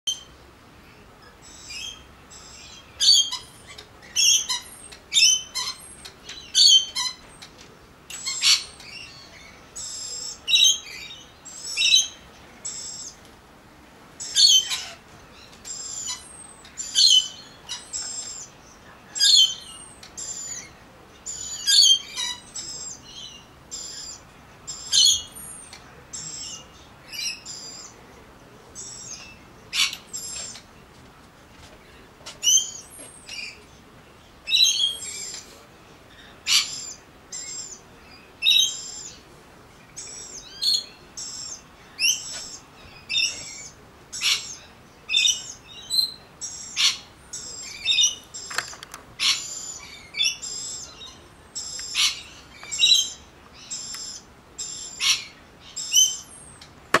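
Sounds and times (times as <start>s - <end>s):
magpies calling: 1.4s - 7.5s, 14.2s - 15.0s, 36.2s - 37.8s, 40.0s - 57.0s.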